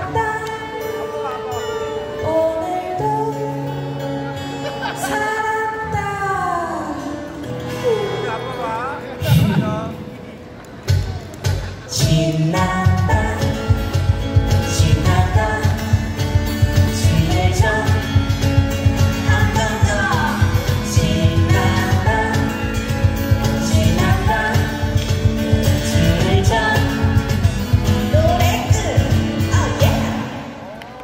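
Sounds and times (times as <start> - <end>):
person singing: 0.0 - 10.0, 11.8 - 30.6
strummed acoustic guitars: 0.0 - 30.6
cajon beat: 10.8 - 30.2.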